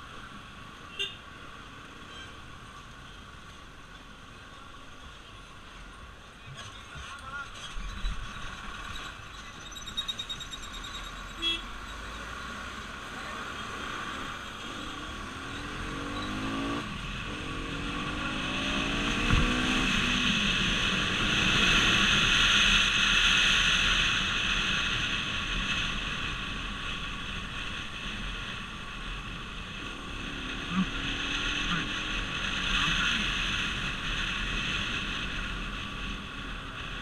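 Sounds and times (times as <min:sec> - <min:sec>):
motorcycle engine accelerating: 0:12.6 - 0:25.0
wind rushing over microphone: 0:13.7 - 0:37.0.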